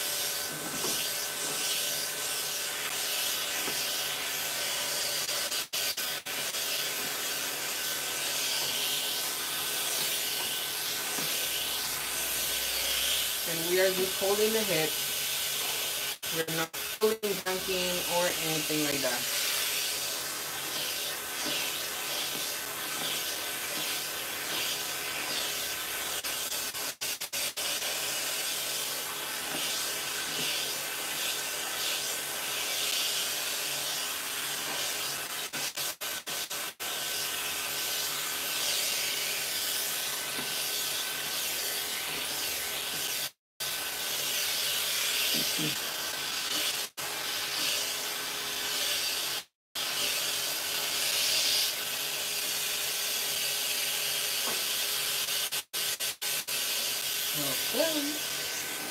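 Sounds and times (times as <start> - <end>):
hair clipper whine: 0.0 - 35.8, 36.4 - 55.6, 56.4 - 58.9.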